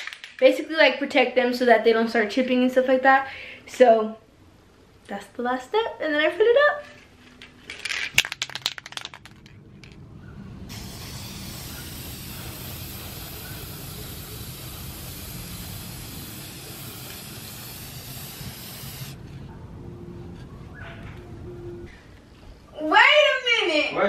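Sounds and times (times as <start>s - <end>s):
aerosol spray can hissing: 10.7s - 19.2s.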